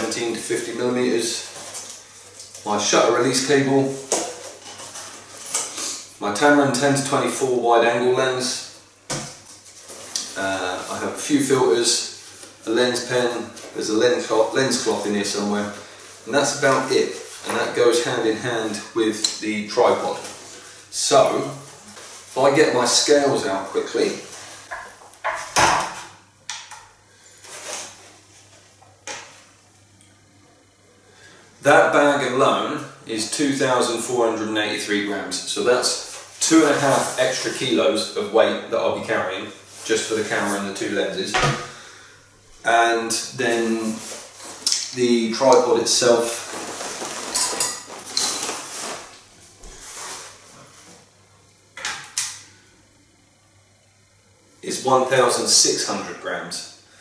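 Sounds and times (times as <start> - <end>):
fabric rustle: 46.1 - 50.9.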